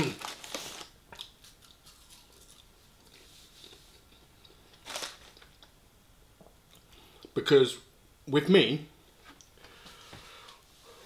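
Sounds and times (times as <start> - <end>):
person chewing food: 1.1 - 4.8.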